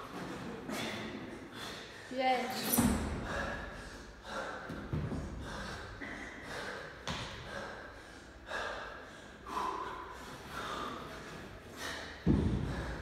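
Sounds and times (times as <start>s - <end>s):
man breathing hard and gasping: 3.1s - 13.0s
thud: 12.2s - 12.8s.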